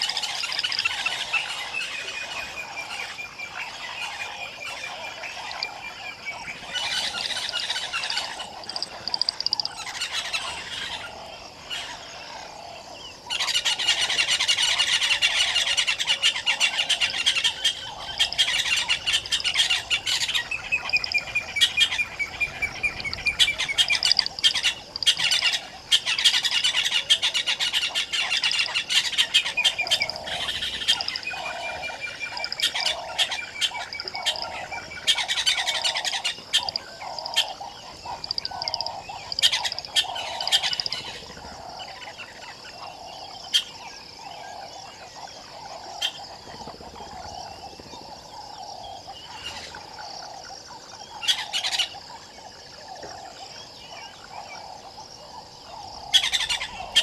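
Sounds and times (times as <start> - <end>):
birds chirping: 0.0 - 10.5, 15.4 - 41.8.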